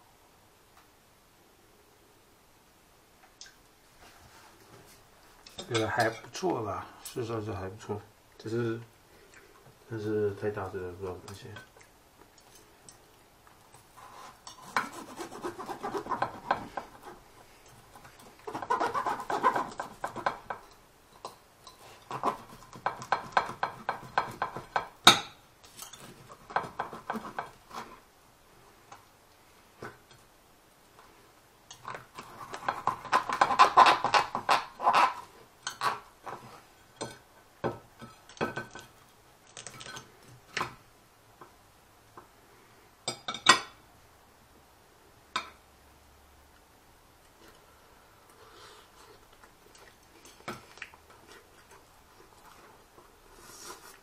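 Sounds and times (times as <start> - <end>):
knife sawing through crisp skin: 14.0 - 16.4, 18.5 - 19.8
cutlery scraping on ceramic plate: 14.0 - 17.2, 31.7 - 37.2.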